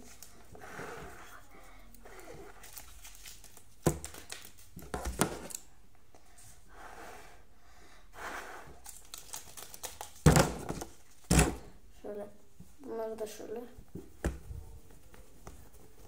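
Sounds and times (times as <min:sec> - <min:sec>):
soft rustling and crinkling: 0:00.0 - 0:06.6, 0:12.5 - 0:16.0.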